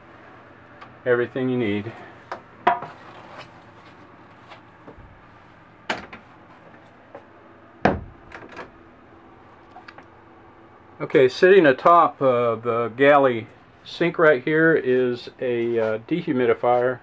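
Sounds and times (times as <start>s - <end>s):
knocks on wood: 7.8s - 8.2s.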